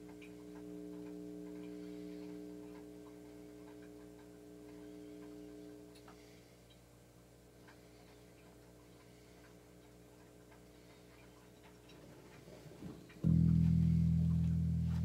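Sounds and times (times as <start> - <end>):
string and fret clicks: 13.1 - 15.0
bass guitar ringing: 13.2 - 15.0.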